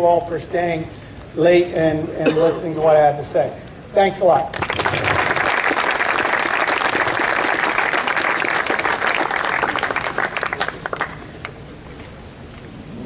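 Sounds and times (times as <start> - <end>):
audience applauding: 4.5 - 11.3.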